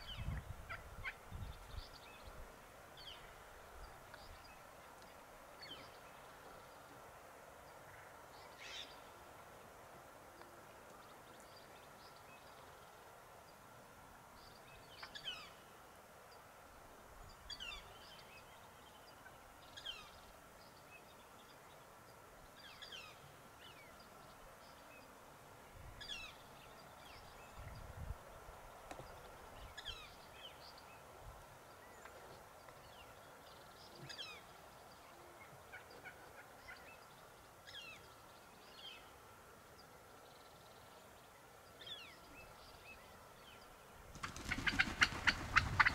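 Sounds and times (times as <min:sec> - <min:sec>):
wild turkeys calling: 0:44.2 - 0:45.9.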